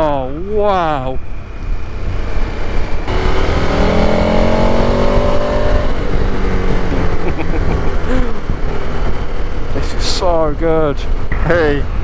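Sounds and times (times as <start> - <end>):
heavy wind noise: 0.0 - 12.0
motorcycle engine accelerating: 1.3 - 10.0.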